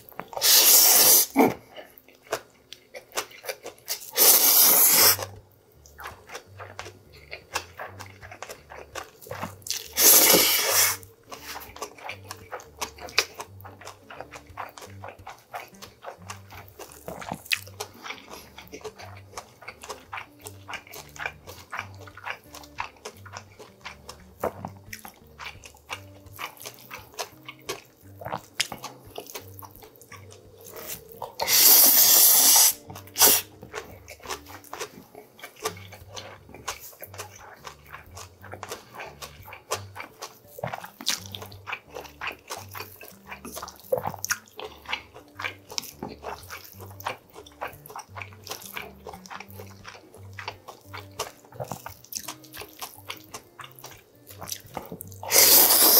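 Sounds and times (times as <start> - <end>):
slurping noodles: 0.0 - 1.8, 3.9 - 5.4, 6.1 - 22.7, 25.5 - 49.8, 53.6 - 55.9
wet chewing: 0.0 - 55.9.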